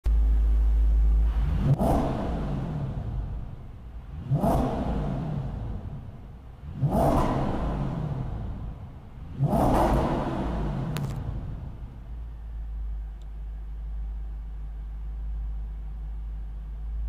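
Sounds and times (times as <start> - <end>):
car engine revving: 0.1 - 13.0.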